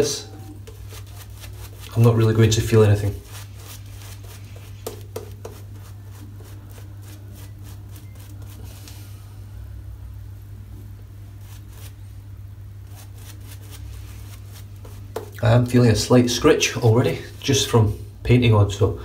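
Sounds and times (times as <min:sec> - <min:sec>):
steady low hum: 0:00.0 - 0:18.3
scratchy shaving brush strokes: 0:00.6 - 0:09.2, 0:11.3 - 0:12.1, 0:12.8 - 0:15.4.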